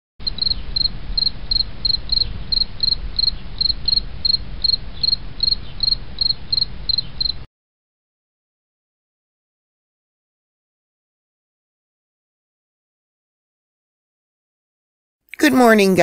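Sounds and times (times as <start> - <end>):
cricket chirping: 0.2 - 7.5
low steady rumble: 0.2 - 7.5.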